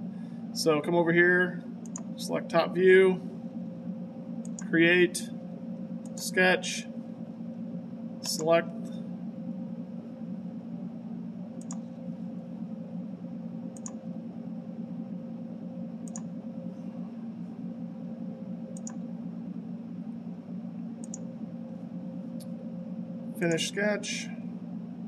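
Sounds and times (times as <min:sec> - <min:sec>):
steady low hum: 0:00.0 - 0:25.0
computer mouse clicking: 0:01.8 - 0:02.2, 0:04.4 - 0:04.7, 0:11.6 - 0:12.0, 0:13.7 - 0:14.0, 0:16.0 - 0:16.4, 0:18.7 - 0:19.1, 0:21.0 - 0:21.3.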